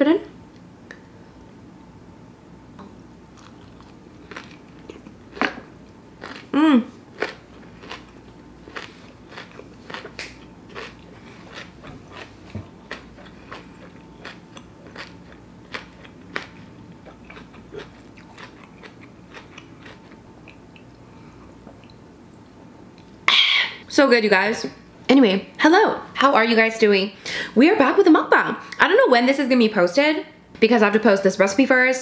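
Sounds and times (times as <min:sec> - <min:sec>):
person chewing crunchily: 0:03.3 - 0:22.0.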